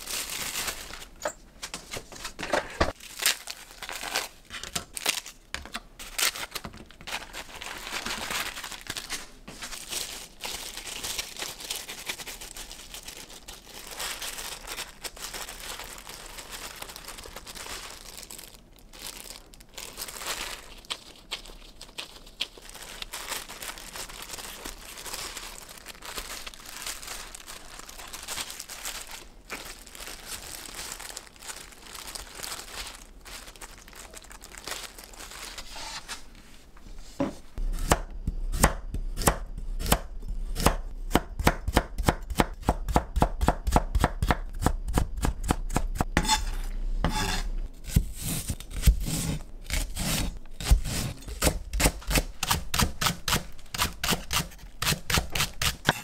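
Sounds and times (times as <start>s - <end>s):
rustling: 6.2s - 37.6s.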